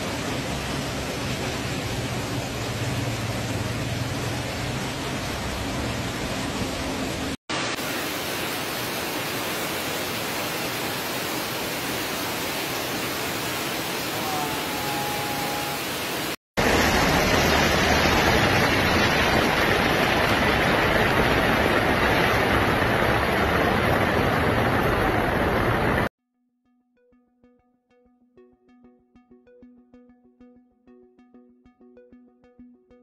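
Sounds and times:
heavy rain: 0:00.0 - 0:26.1
rushing floodwater: 0:00.0 - 0:26.1.

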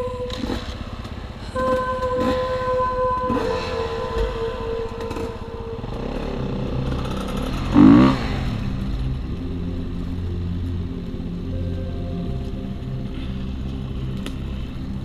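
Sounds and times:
dirt bike engine revving: 0:00.0 - 0:09.3
dirt bike engine running: 0:00.0 - 0:15.0.

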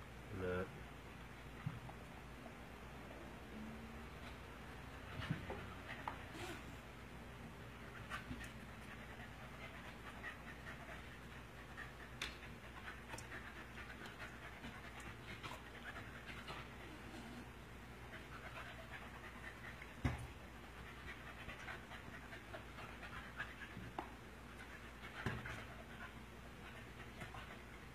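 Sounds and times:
dog panting: 0:07.8 - 0:27.9.

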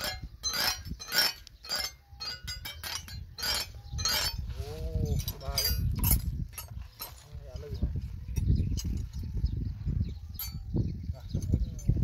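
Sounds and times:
metal spanners clinking: 0:00.0 - 0:09.3.

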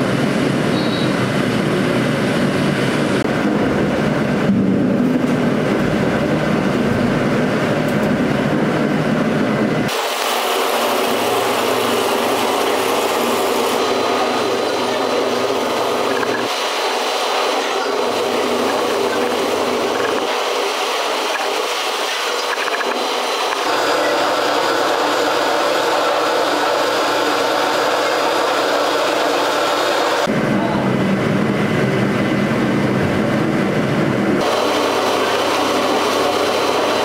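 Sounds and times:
machinery hum: 0:00.0 - 0:37.0
water from a hose rushing into cans: 0:09.9 - 0:14.4.

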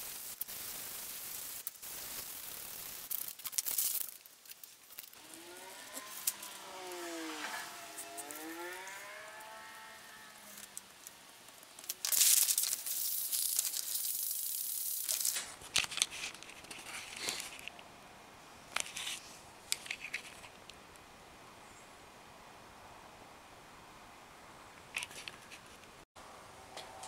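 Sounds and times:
paper rustling: 0:10.5 - 0:17.7.

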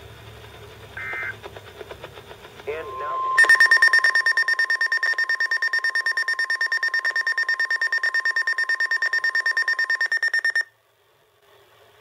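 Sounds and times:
steady warning tone: 0:01.0 - 0:01.4, 0:02.6 - 0:10.7
rapid alarm beeping: 0:02.7 - 0:10.7.

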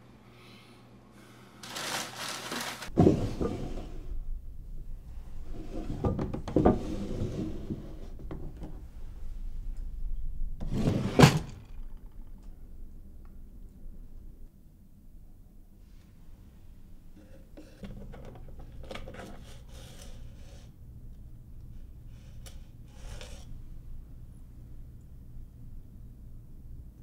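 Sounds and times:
wooden drawers sliding: 0:01.7 - 0:04.1, 0:05.5 - 0:08.5, 0:10.6 - 0:11.7.

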